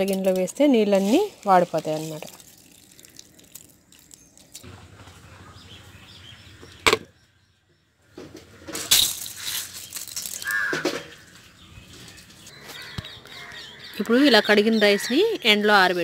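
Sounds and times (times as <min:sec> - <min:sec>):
wet rice rustling against metal: 0:00.0 - 0:04.6.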